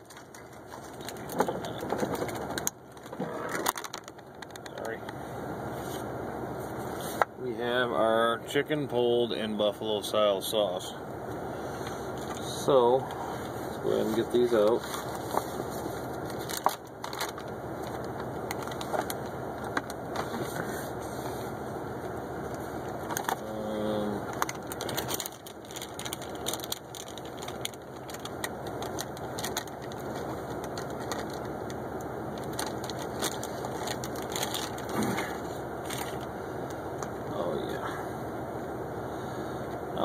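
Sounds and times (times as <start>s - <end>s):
plastic and foil crinkling: 0.0s - 5.0s, 13.8s - 21.5s, 22.5s - 37.1s.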